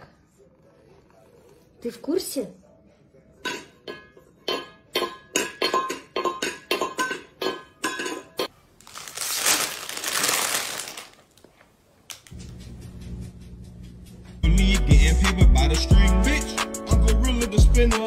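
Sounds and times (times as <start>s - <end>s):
background music with low beat: 12.3s - 18.0s.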